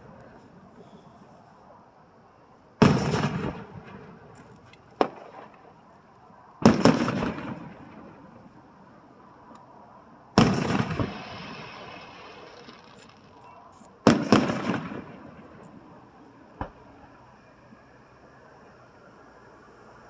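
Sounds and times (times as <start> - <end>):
firework shells booming: 2.8 - 5.8, 6.6 - 8.4, 10.4 - 13.4, 14.0 - 15.8, 16.6 - 16.9
sharp crack: 2.8 - 5.8, 6.6 - 8.2, 10.4 - 15.8.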